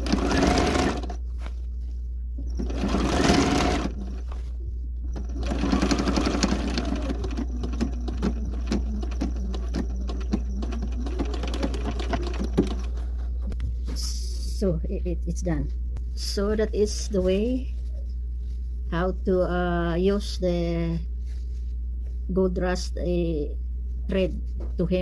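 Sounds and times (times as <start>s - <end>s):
sewing machine stitching: 0.0s - 1.2s, 2.4s - 4.3s, 5.1s - 13.0s.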